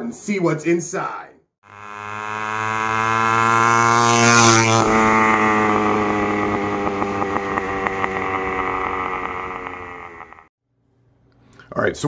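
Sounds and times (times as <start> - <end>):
small engine running: 1.7 - 10.5.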